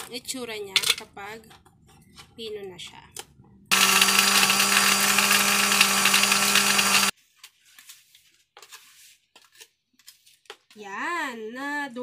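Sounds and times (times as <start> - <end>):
blender motor grinding: 3.7 - 7.1.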